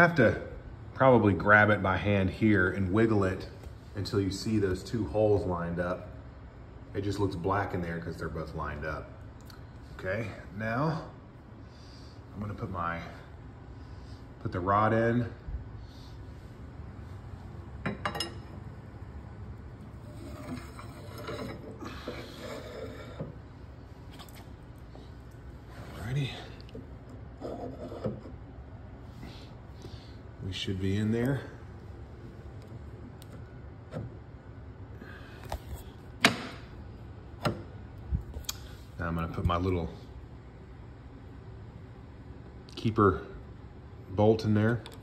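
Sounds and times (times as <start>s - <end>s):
faint metal scraping: 19.9s - 23.5s, 27.3s - 28.4s
metal rod sliding into sleeve: 20.0s - 23.3s.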